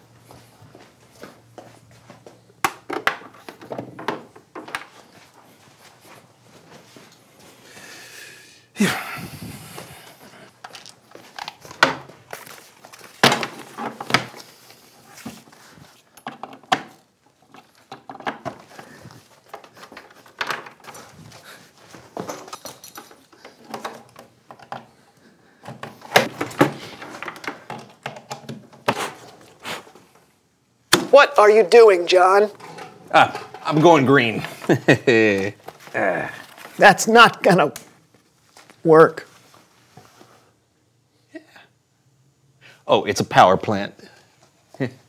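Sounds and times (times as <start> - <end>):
cords and power strip clattering: 16.2 - 25.0, 25.6 - 29.4, 32.5 - 36.8.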